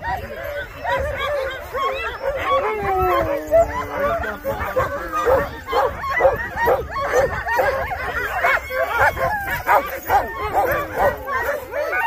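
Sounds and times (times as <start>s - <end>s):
dog howling: 0.0s - 12.0s
dogs barking and yipping: 0.0s - 12.0s.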